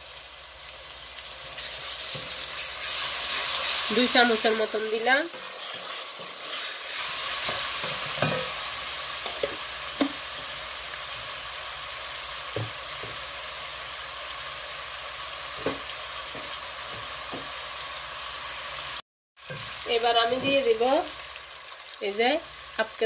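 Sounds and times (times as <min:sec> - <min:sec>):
onion sizzling in hot oil: 0:00.0 - 0:23.0
wooden spatula knocking on pan: 0:09.3 - 0:10.2, 0:12.5 - 0:13.2, 0:15.6 - 0:17.6.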